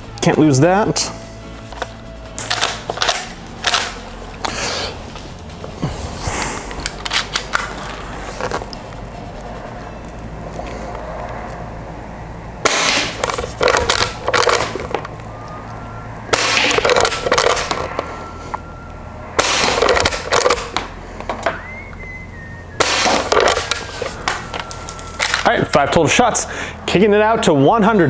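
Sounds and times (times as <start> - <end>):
airsoft rifle shots: 12.6 - 14.8, 16.3 - 17.9, 19.4 - 20.7, 22.8 - 23.9.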